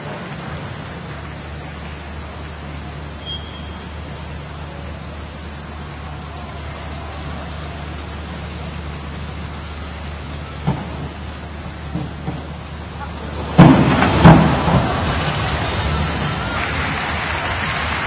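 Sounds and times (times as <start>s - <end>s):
diver splashing into pool: 13.2s - 17.6s.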